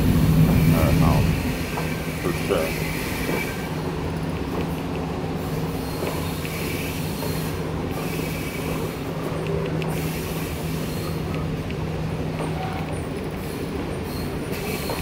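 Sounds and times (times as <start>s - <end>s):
train rumble: 0.0s - 15.0s
wheel squeal: 12.4s - 15.0s.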